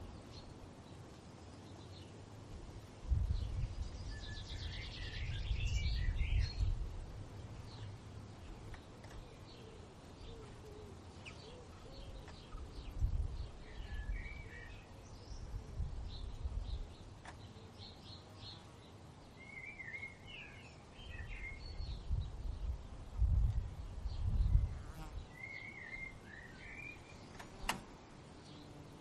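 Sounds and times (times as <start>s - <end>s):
small birds chirping: 0.0s - 2.4s, 3.1s - 29.0s.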